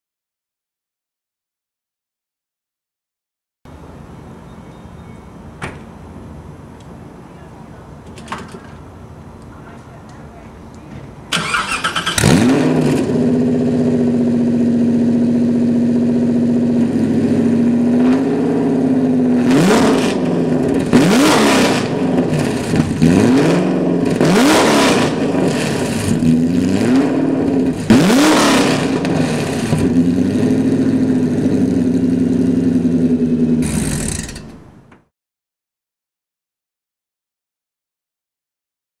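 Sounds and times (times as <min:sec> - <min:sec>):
car engine idling and revving: 0:11.4 - 0:34.9.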